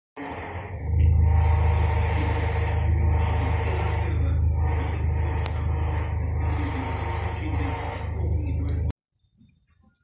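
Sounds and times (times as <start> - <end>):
engine idling: 0.2 - 8.9.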